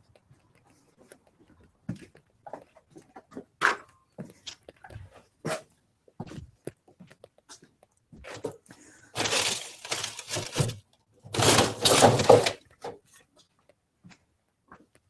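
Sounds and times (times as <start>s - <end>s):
objects knocking and scraping: 8.2s - 13.1s.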